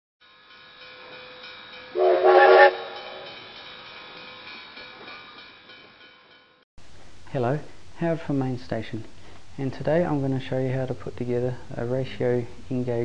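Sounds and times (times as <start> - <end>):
steam hissing: 0.9 - 5.0
steam whistle blast: 2.0 - 3.4.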